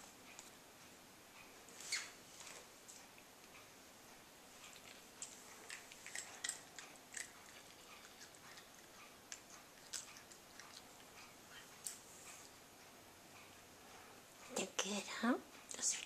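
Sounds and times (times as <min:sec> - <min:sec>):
cat crunching dry treats: 0:04.7 - 0:11.0.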